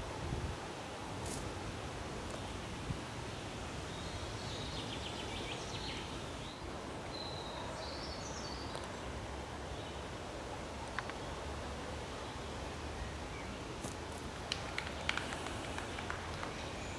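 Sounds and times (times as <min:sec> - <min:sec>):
wind on microphone: 0:00.0 - 0:00.7.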